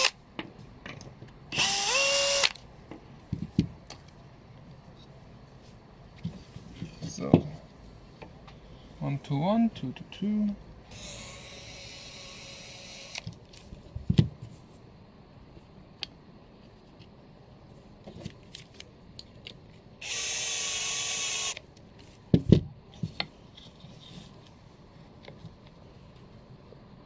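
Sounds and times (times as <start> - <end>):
cordless drill whirring: 1.5 - 2.6, 10.9 - 13.3, 20.0 - 21.6.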